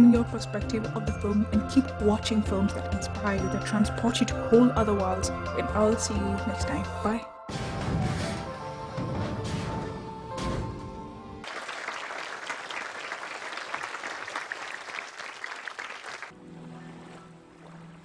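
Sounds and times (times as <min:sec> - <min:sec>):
music: 0:00.0 - 0:11.5, 0:16.3 - 0:18.0
audience applauding: 0:11.4 - 0:16.3.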